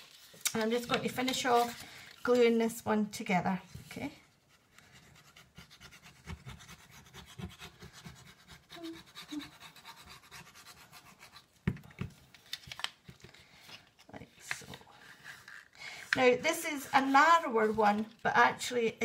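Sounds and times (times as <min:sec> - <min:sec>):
paper rustling and scratching: 0:00.0 - 0:02.8, 0:12.4 - 0:18.4.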